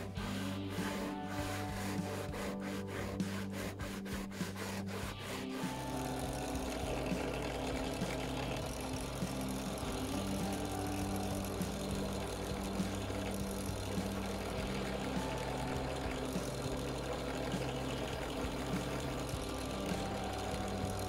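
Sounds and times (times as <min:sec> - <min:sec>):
knife rubbed on sharpening surface: 0:00.2 - 0:05.9
drill press motor humming: 0:04.0 - 0:21.0.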